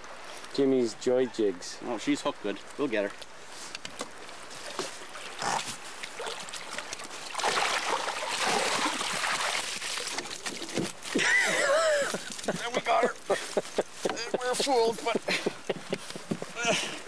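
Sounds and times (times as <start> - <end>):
water splashing and churning: 4.2 - 13.3.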